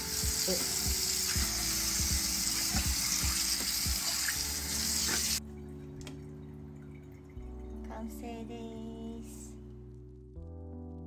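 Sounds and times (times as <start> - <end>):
tap water pouring into sink: 0.0 - 7.8
soft background music: 0.0 - 11.0.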